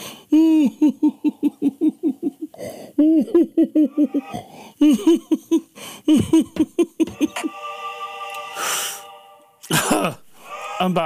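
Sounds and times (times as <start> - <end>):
man laughing: 0.3 - 7.5, 9.6 - 10.3
sharp intake of breath: 8.4 - 9.2.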